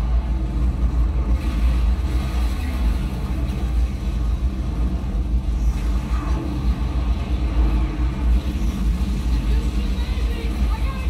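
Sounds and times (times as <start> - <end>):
deep tornado wind from tv: 0.0 - 11.0.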